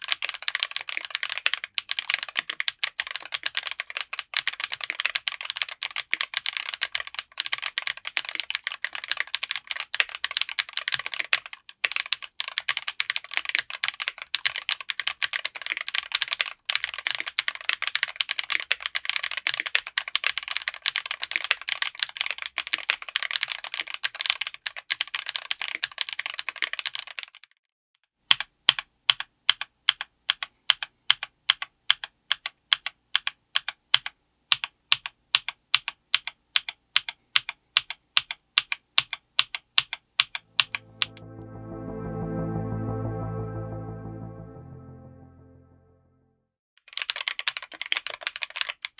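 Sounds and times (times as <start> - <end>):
mechanical keyboard typing: 0.0 - 27.4, 46.9 - 48.9.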